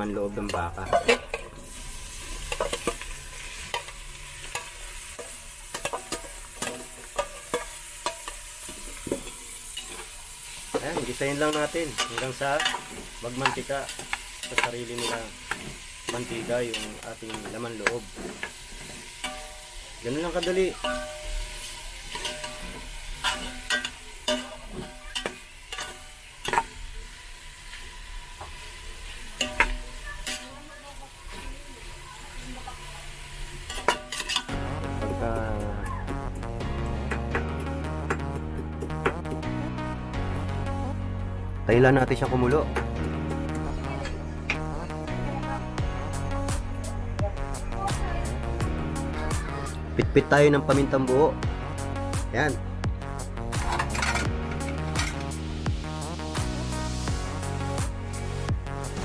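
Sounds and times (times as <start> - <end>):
meat sizzling in oil: 0.0 - 39.5, 53.0 - 59.0
utensil scraping a pan: 0.5 - 26.8, 33.6 - 34.5, 53.6 - 55.3.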